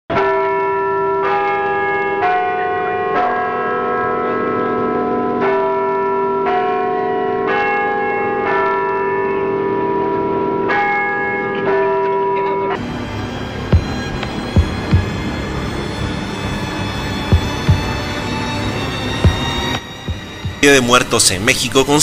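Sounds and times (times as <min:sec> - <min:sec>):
church bells ringing: 0:00.1 - 0:22.0.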